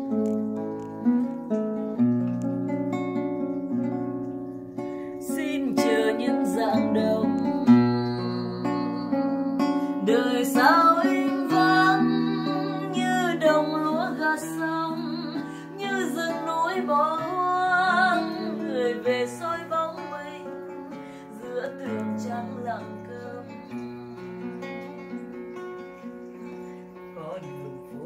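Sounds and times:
acoustic guitar: 0.0 - 28.0
woman singing slow melody: 5.1 - 25.6, 26.6 - 28.0.

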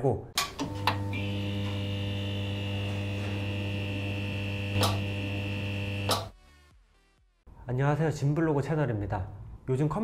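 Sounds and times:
neon sign mains hum: 0.6 - 6.3.

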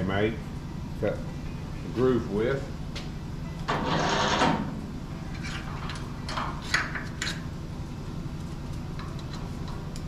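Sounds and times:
steady low machine hum: 0.0 - 10.0
metal scraping slide: 3.7 - 4.7.

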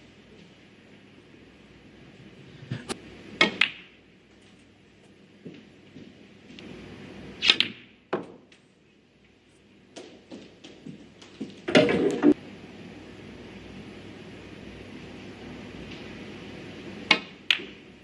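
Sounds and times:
snooker balls clicking: 2.8 - 4.6, 9.9 - 12.4, 17.1 - 17.9
cue tip striking ball: 3.4 - 4.0, 17.1 - 17.9.

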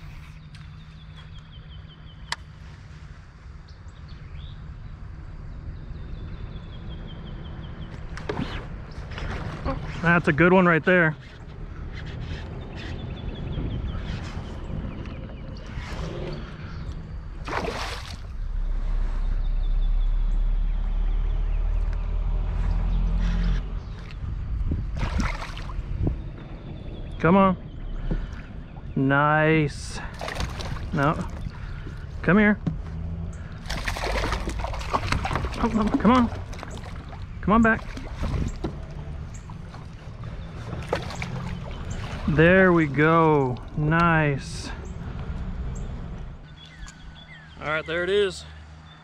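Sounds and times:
songbird chirping: 0.0 - 2.8, 3.6 - 49.0
low steady rumble: 0.0 - 47.6
fish splashing at water surface: 17.4 - 18.4, 25.0 - 25.8, 30.1 - 32.0, 33.6 - 42.4.

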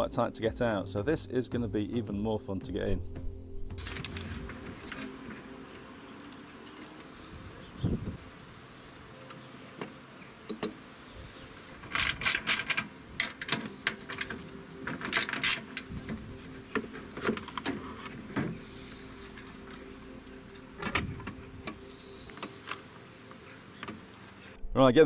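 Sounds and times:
hands working in engine bay: 11.8 - 24.5
faint steady hum: 12.8 - 24.7.

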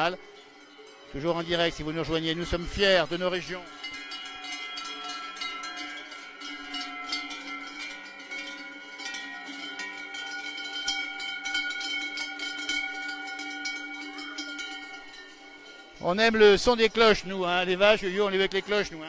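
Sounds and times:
cowbells ringing and clanking: 0.0 - 19.0.

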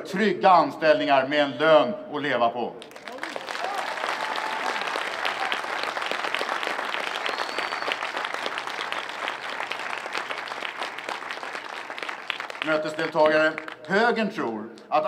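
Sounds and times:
crowd applauding: 2.8 - 14.0.

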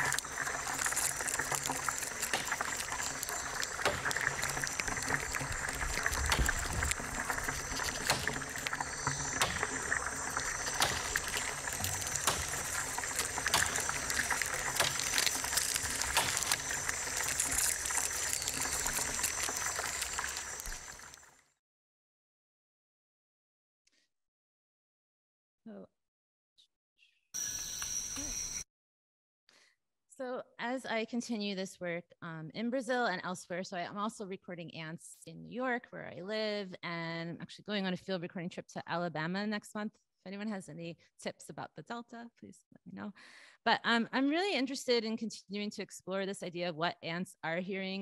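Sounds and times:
crackle of clicks and scratches: 0.0 - 21.4
steady high tones: 27.4 - 28.6.

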